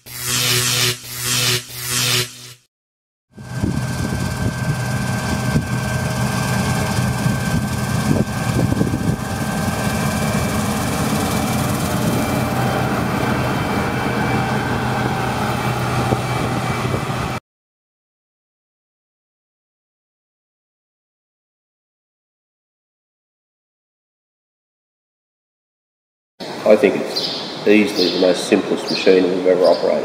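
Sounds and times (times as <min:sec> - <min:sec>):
combine harvester droning: 0:03.4 - 0:17.4.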